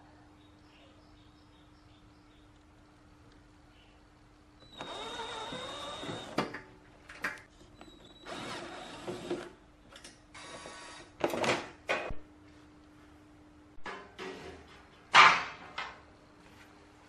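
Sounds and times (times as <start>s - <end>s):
cordless drill running: 4.6s - 6.5s, 8.2s - 9.5s.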